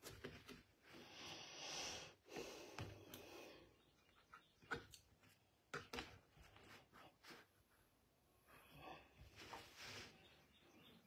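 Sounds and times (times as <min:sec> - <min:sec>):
faint breathing: 0:00.9 - 0:04.0.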